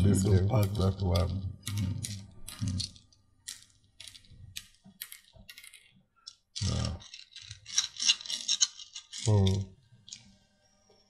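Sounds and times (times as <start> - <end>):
seeds clicking into wooden board: 0.6 - 10.2.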